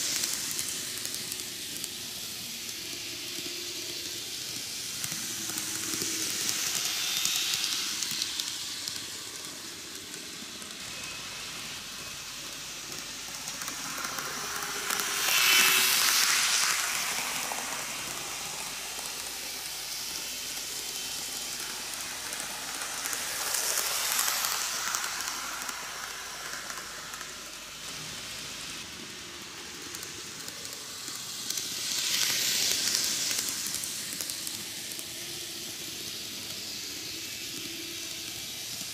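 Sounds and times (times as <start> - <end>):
model trains rattling on track: 0.0 - 38.9.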